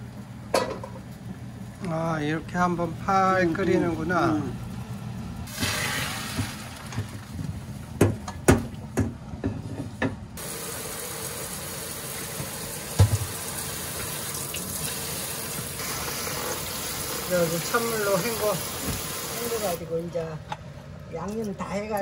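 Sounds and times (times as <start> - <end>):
kitchen tap running: 5.5 - 8.1, 10.4 - 19.8
metal pot knocking against sink: 13.0 - 13.3.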